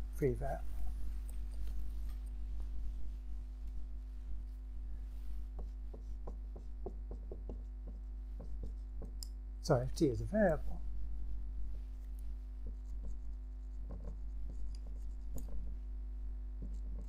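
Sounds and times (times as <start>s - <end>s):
low mains hum: 0.0s - 17.0s
light taps of writing on board: 5.5s - 9.4s, 12.6s - 15.7s, 16.6s - 17.0s.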